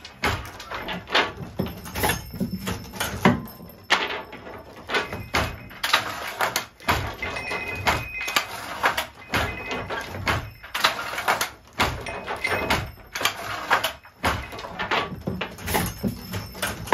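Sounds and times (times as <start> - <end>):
loom sliding and rattling: 0.0 - 16.9
wooden loom clacking: 0.0 - 16.9.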